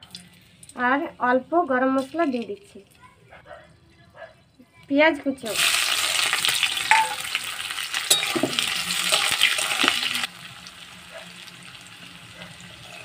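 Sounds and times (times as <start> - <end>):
onions sizzling in hot oil: 5.3 - 13.0.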